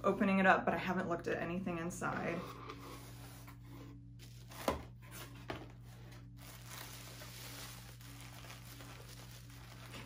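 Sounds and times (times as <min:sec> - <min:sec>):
packaging rustling and crinkling: 0:04.2 - 0:10.0.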